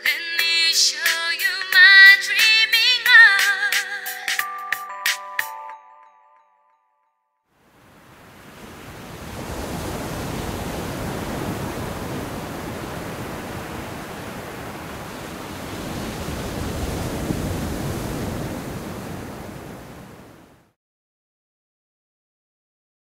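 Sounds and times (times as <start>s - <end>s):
steady rushing noise: 7.9s - 20.6s.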